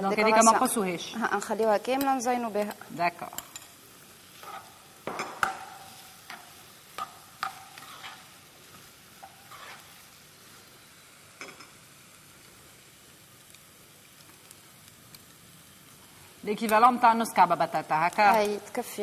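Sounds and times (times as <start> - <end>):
vegetables sizzling in oil: 0.0 - 19.0
metal spoon scraping a pot: 4.4 - 5.3, 7.4 - 8.4, 9.2 - 10.0.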